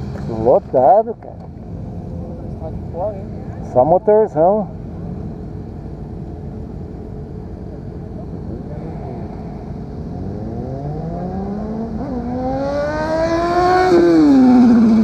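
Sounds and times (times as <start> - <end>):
motorcycles running around track: 7.1 - 15.0
motorcycle engine accelerating: 8.6 - 15.0.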